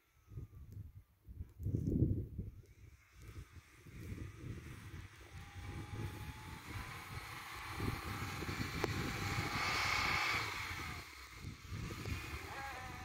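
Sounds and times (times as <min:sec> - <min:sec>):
wind rumble on microphone: 0:00.0 - 0:13.0
car engine revving: 0:02.9 - 0:13.0.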